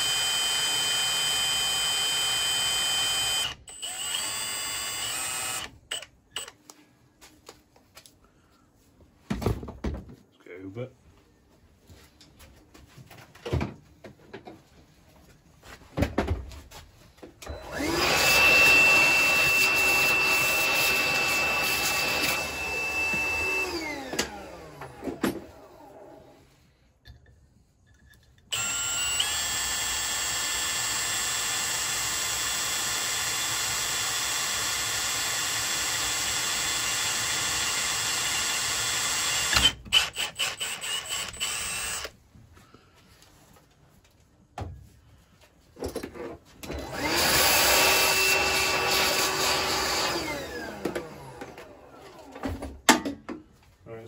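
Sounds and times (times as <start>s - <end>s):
cordless drill whining: 0.0s - 6.7s, 17.4s - 26.2s, 28.5s - 42.2s, 46.6s - 52.5s
drill clicks: 0.0s - 6.8s, 28.0s - 42.2s.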